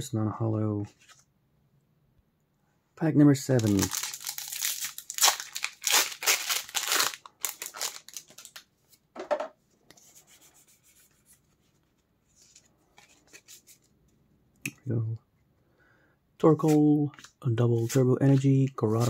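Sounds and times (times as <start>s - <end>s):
rustling of wrapper and cards: 3.4s - 9.0s, 10.7s - 14.1s, 16.6s - 19.0s
foil wrapper crinkling and tearing: 3.6s - 8.6s.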